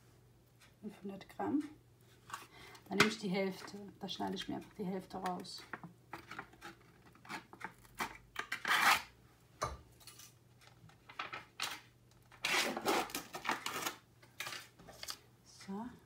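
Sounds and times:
wrapper rustling scrape: 11.1s - 15.2s.

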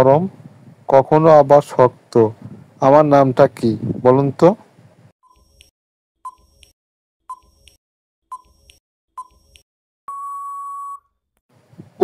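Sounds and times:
countdown timer beeps: 5.2s - 6.7s, 7.3s - 11.1s
long timer beep: 5.2s - 6.7s, 7.3s - 11.2s.

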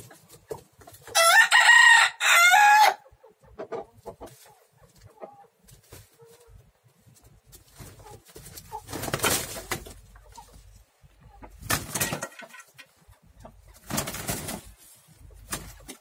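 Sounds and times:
roosters wings flapping: 13.8s - 14.7s.

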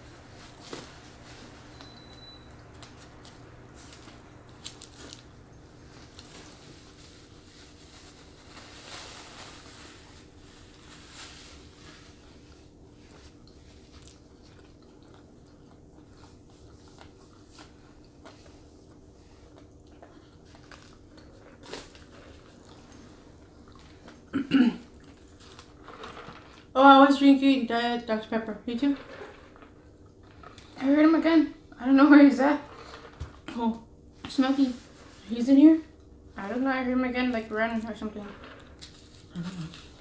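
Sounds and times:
faint steady hum: 0.0s - 40.0s
biting and chewing: 13.2s - 26.7s.

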